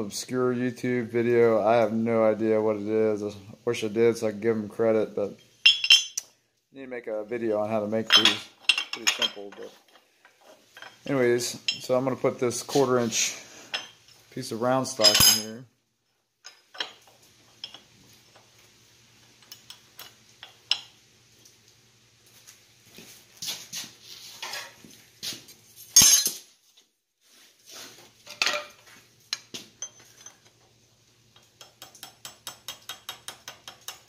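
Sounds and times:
steel clinking and clattering: 5.6 - 6.2, 8.0 - 12.0, 14.9 - 15.6, 26.0 - 26.4, 28.3 - 30.5.

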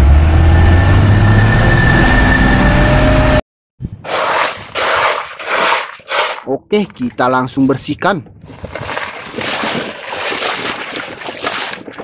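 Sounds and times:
diesel engine low drone: 0.0 - 3.4
rough rustling scrapes: 4.0 - 6.5, 8.5 - 12.0.

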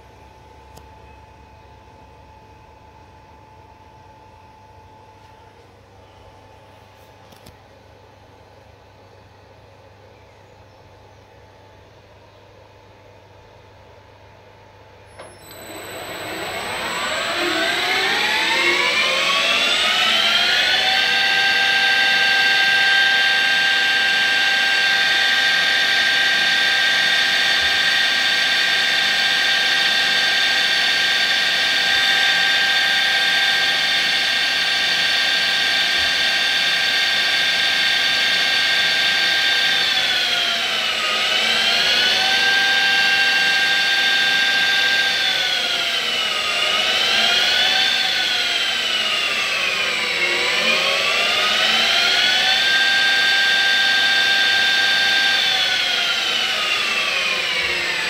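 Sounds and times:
spindle motor whining: 15.1 - 58.0.

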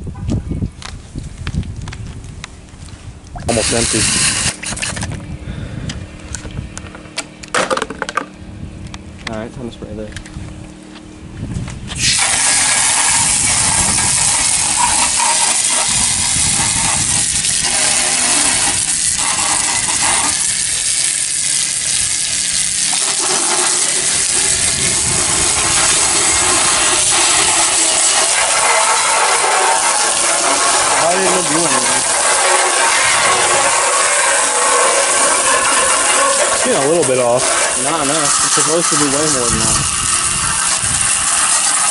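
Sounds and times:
hose jet hissing on metal: 3.5 - 4.9, 11.9 - 41.9.

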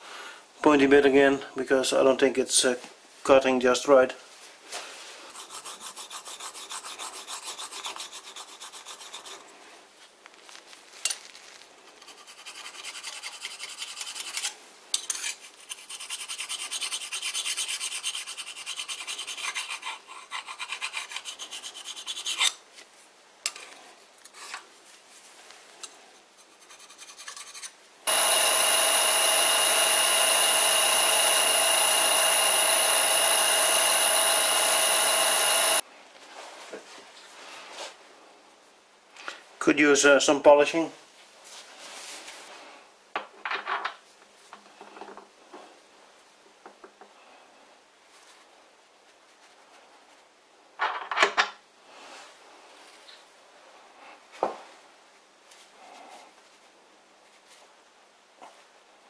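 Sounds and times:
tool bit scraping by hand: 5.3 - 9.4, 12.0 - 22.6, 25.8 - 35.8
lathe running with high whine: 28.1 - 35.8.

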